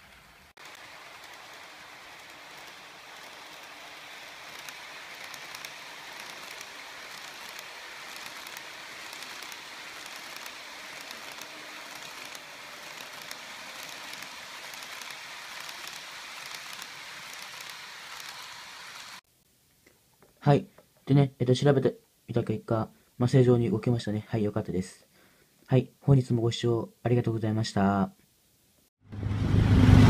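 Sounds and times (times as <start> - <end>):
model train wheels rolling: 0.0 - 19.2.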